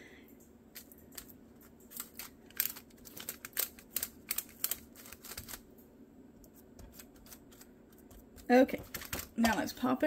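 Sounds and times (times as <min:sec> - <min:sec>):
aluminium foil crinkling: 0:00.8 - 0:05.6, 0:06.8 - 0:09.9.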